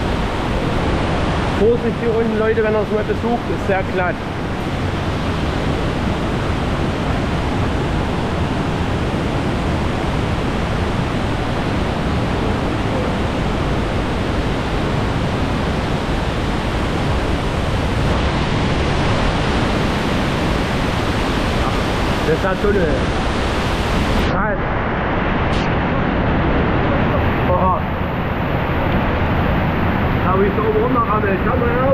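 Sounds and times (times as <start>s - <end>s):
waterfall rushing: 0.0s - 24.4s.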